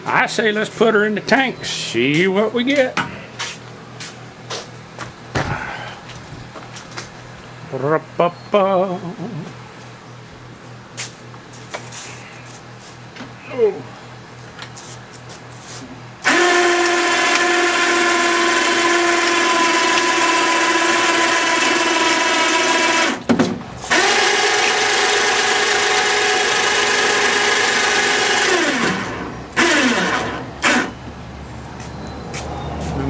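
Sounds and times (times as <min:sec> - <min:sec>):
electric hoist motor whine: 0:16.0 - 0:31.4.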